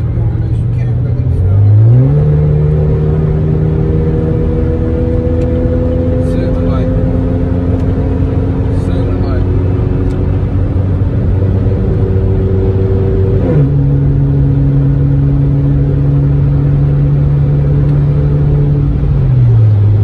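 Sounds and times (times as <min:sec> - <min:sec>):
car engine drone from inside: 0:00.0 - 0:20.0.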